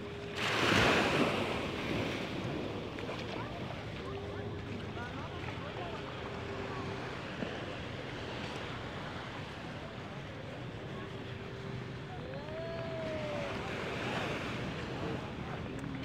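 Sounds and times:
surf washing onto beach: 0:00.0 - 0:09.8
steady droning tone: 0:00.0 - 0:16.0.

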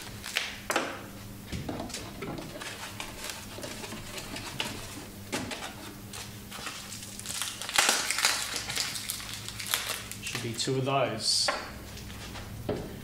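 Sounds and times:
steady low hum: 0:00.0 - 0:13.0
plastic rustling: 0:01.7 - 0:10.6.

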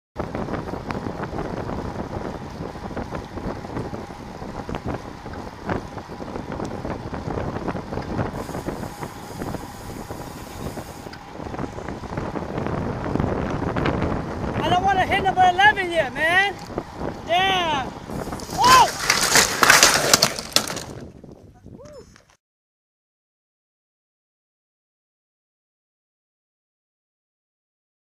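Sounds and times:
bicycle rattles and knocks: 0:00.2 - 0:14.6, 0:16.2 - 0:17.2, 0:18.0 - 0:21.4
road noise: 0:00.2 - 0:21.2
wind rushing over microphone: 0:00.2 - 0:22.2.

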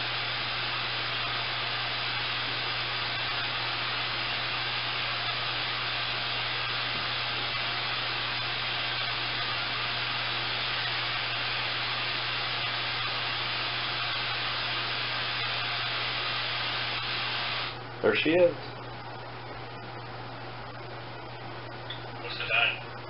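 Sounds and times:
radio static hiss: 0:00.0 - 0:19.1, 0:22.0 - 0:23.0.

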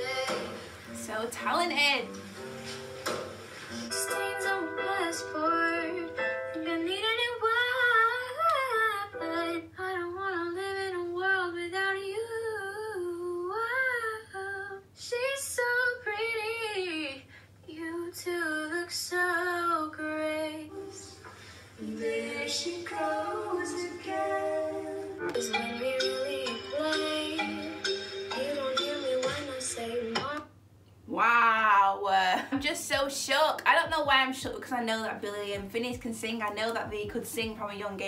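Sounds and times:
girl singing: 0:00.0 - 0:00.6, 0:03.9 - 0:21.2, 0:21.8 - 0:30.6.

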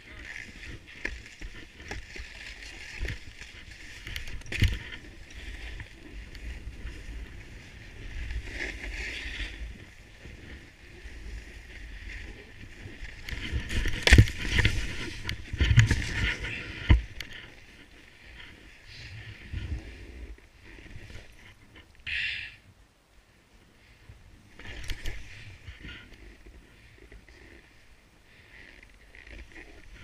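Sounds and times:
snowboard scraping over snow: 0:00.0 - 0:21.6.

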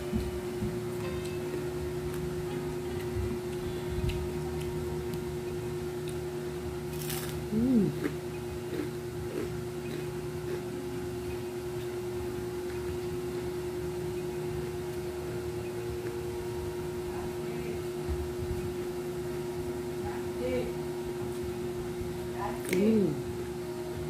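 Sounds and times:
appliance humming: 0:00.0 - 0:24.0
chewing crispy food: 0:00.9 - 0:13.4.

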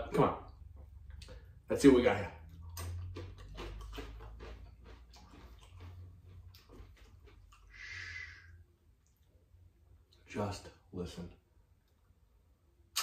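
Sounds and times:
person chewing crispy fries: 0:02.4 - 0:08.0
short breathy hiss: 0:07.7 - 0:08.5.

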